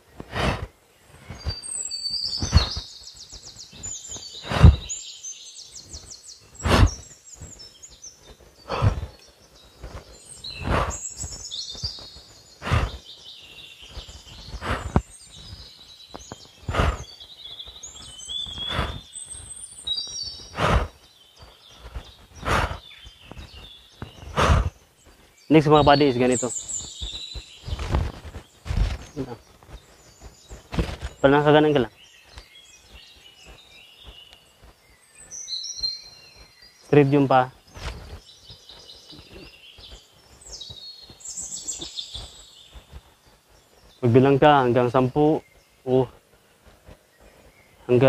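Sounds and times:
birds chirping and trilling: 0.0s - 48.0s
man breathing out sharply: 0.3s - 0.7s.

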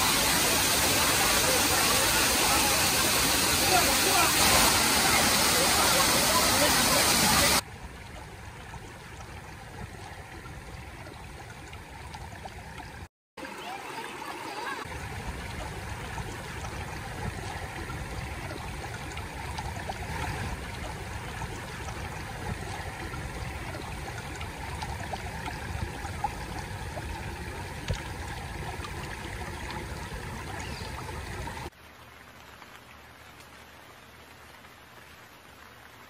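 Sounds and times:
stream rushing over rocks: 0.0s - 7.6s.

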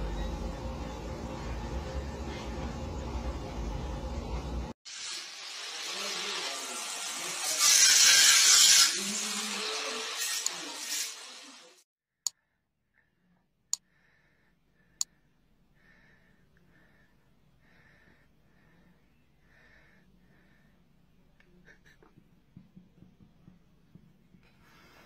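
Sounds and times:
angle grinder cutting metal: 4.9s - 11.8s.

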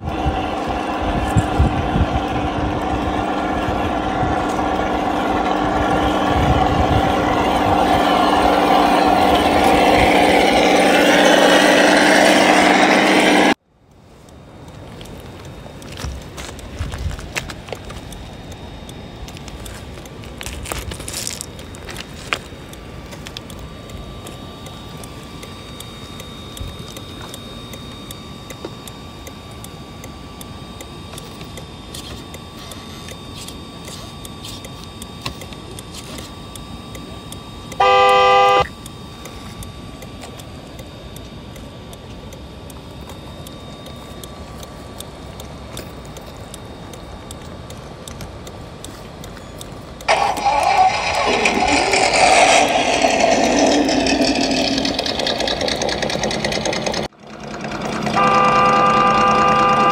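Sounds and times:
simulated engine running: 0.0s - 13.6s, 14.3s - 59.9s
faint steady whine: 0.0s - 59.9s
horn toot: 37.8s - 38.7s, 58.2s - 59.9s.

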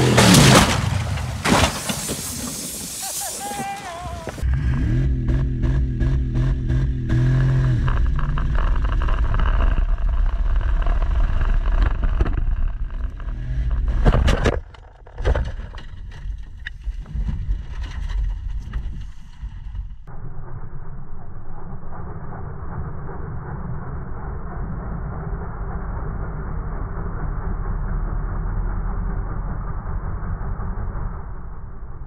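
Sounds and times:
car engine at full throttle: 0.0s - 1.4s, 4.3s - 14.8s, 20.1s - 32.0s
car crashing: 0.0s - 4.4s.

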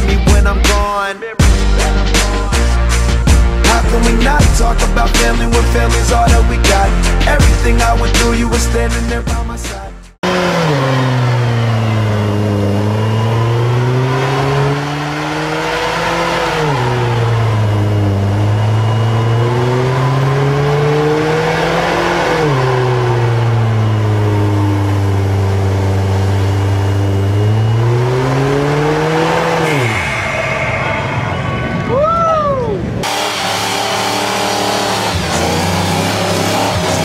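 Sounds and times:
car engine revving high: 0.0s - 37.0s
spinning tyres rushing: 0.0s - 37.0s.

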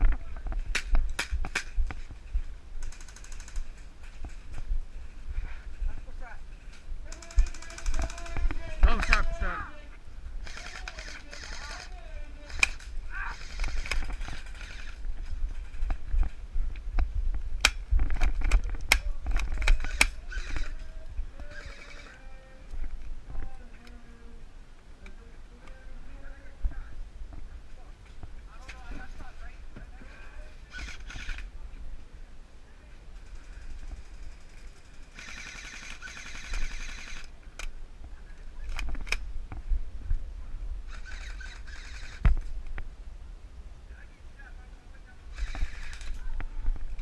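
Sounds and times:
wind and handling rumble: 0.0s - 47.0s
sharp cracks and clacks: 0.6s - 2.0s, 2.8s - 4.6s
sharp clicks: 10.4s - 15.0s, 17.6s - 20.8s, 45.3s - 46.2s
airsoft gun firing full auto: 35.1s - 37.3s.

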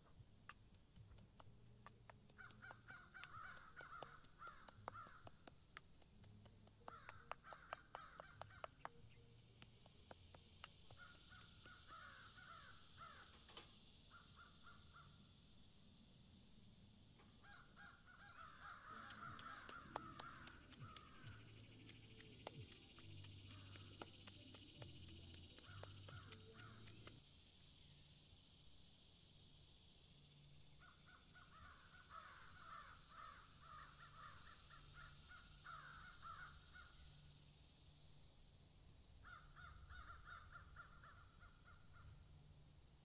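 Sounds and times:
steady high hiss: 0.0s - 43.0s
faint crows cawing: 2.1s - 15.3s, 17.2s - 27.2s, 30.8s - 37.2s, 39.2s - 42.2s.

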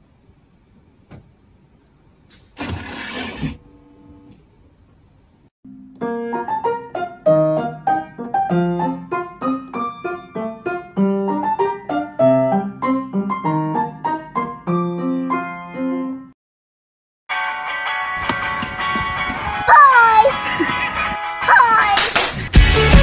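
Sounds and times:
piano music: 5.7s - 16.4s.

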